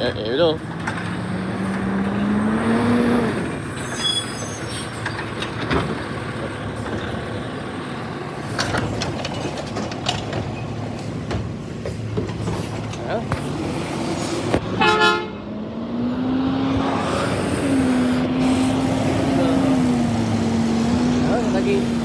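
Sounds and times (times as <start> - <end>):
diesel truck engine revving: 0.0 - 3.9, 12.9 - 22.0.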